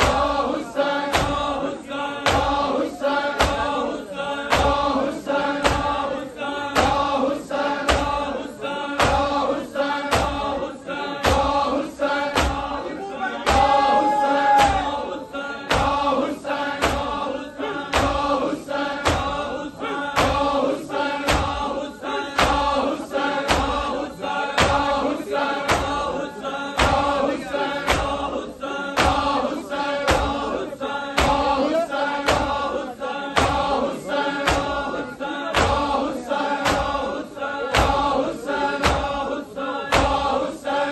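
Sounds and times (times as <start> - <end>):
crowd of men chanting: 0.0 - 40.9
hands slapping bare chests: 3.4 - 3.7, 5.6 - 6.0, 7.8 - 8.2, 12.3 - 12.7, 14.5 - 15.0, 21.2 - 21.7, 22.4 - 22.8, 23.4 - 23.8, 24.6 - 24.9, 25.6 - 26.0, 26.8 - 28.2, 35.5 - 38.1.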